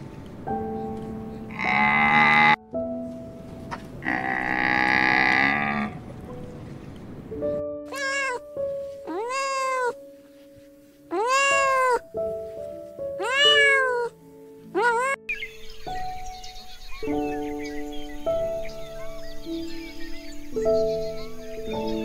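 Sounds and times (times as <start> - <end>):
soft background music: 0.0 - 22.0
low animal call: 4.0 - 6.1, 9.1 - 10.0, 11.1 - 12.0, 14.8 - 15.2
cat meowing: 7.9 - 8.5, 9.1 - 10.0, 11.1 - 12.0, 13.2 - 14.2, 14.8 - 15.2.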